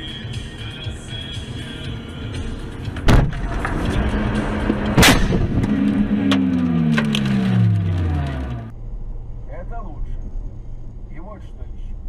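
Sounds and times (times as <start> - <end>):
knocks and clatter: 2.8 - 8.3
car crash impact: 2.9 - 8.7
sharp bang: 3.0 - 3.9, 4.9 - 6.4.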